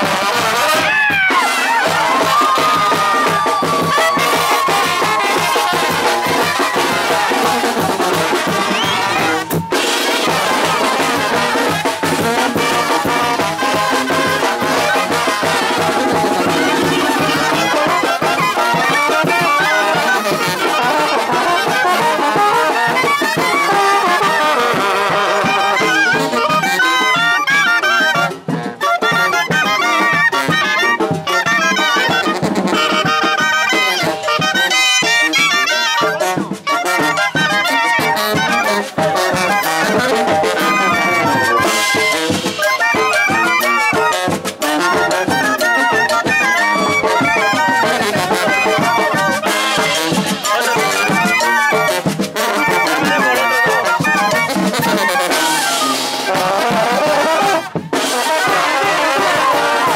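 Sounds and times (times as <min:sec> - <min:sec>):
quick clarinet runs: 0:00.0 - 0:59.9
wind band playing: 0:00.0 - 0:59.9.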